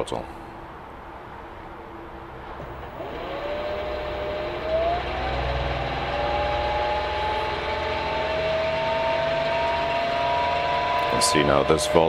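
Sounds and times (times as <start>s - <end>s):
low hum: 0.4s - 12.0s
electric motor whine: 2.6s - 12.0s.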